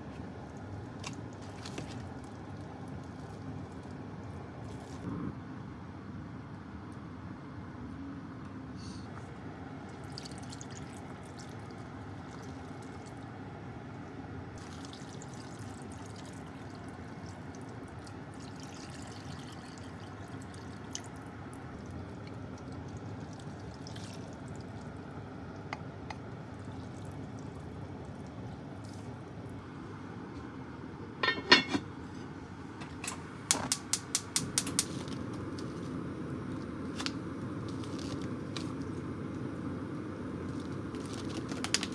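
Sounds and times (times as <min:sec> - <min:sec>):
steady low hum: 0:00.0 - 0:41.9
liquid pouring into a pot: 0:10.0 - 0:13.1, 0:14.6 - 0:21.2, 0:21.8 - 0:25.0, 0:26.4 - 0:28.8.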